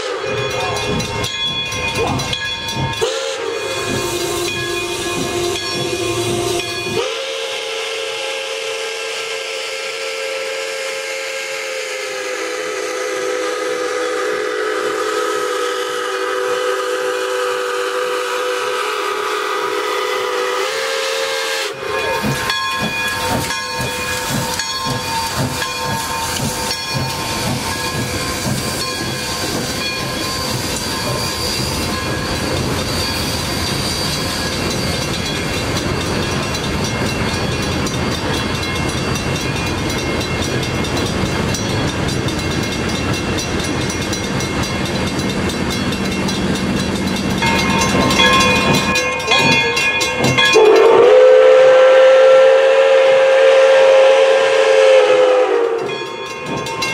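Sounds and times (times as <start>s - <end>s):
steam whistle: 0.0s - 0.5s, 3.0s - 22.3s, 50.5s - 56.1s
train wheels clattering: 0.0s - 7.2s, 20.6s - 52.6s, 53.2s - 56.9s
crossing bell ringing: 0.0s - 7.3s, 21.7s - 51.6s, 54.8s - 56.9s.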